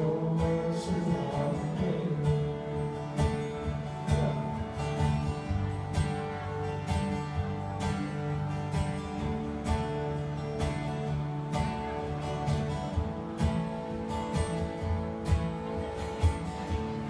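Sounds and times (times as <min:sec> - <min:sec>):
country music: 0:00.0 - 0:17.0
strummed acoustic guitar: 0:00.0 - 0:17.0.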